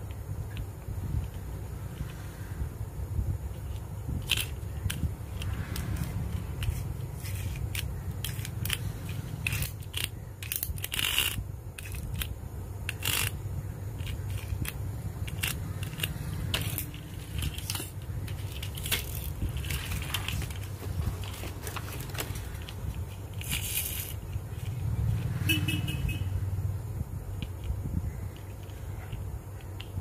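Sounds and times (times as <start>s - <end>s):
plastic toys clicking and rattling: 0.0s - 2.2s, 3.5s - 25.3s, 27.3s - 30.0s
steady low hum: 0.0s - 30.0s
plastic packaging crinkling: 16.6s - 24.1s.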